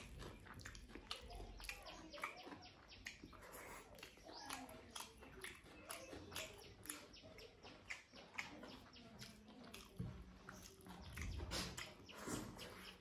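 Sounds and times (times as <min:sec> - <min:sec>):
wet chewing and lip smacks: 0:00.0 - 0:13.0.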